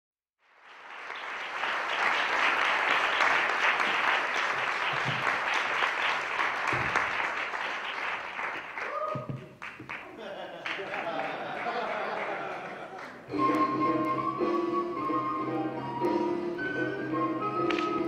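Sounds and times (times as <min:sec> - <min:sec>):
audience applauding: 0:00.4 - 0:13.6.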